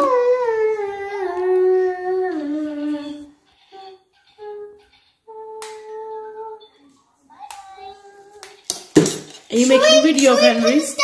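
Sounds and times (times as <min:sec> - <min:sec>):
child humming a wordless tune: 0:00.0 - 0:06.6.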